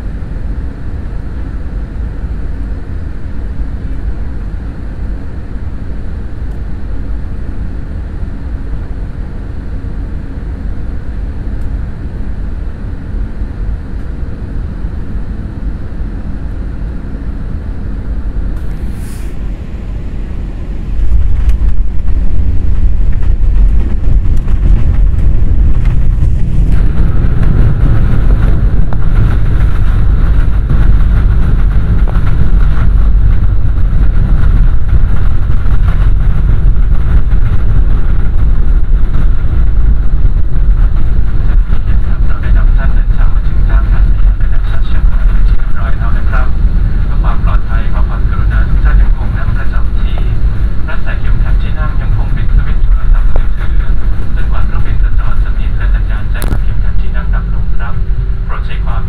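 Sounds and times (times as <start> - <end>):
engine and airflow rush: 0.0 - 59.0
steady engine tone rising: 8.8 - 59.0
wheels touching down rumble: 20.9 - 41.7.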